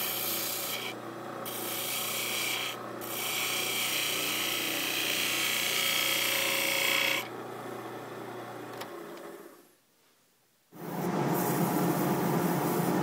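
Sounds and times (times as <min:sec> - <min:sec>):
lathe motor humming: 0:00.0 - 0:09.4
turning tool cutting wood: 0:00.0 - 0:09.4.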